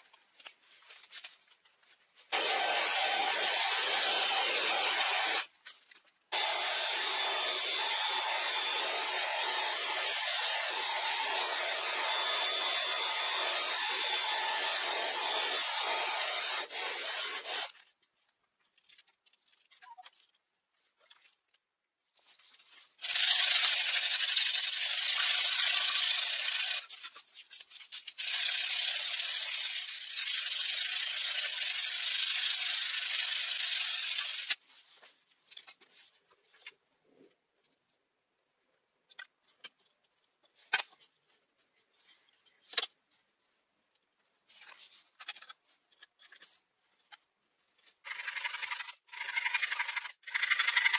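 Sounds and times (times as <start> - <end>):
electric disc sander running: 2.4 - 5.4, 6.4 - 17.6.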